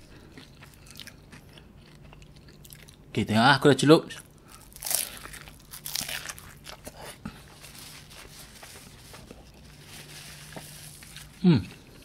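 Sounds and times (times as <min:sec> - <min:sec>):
chewing with pastry crackles: 0:00.0 - 0:03.2, 0:04.0 - 0:12.0
biting into pastry crust: 0:04.5 - 0:09.7.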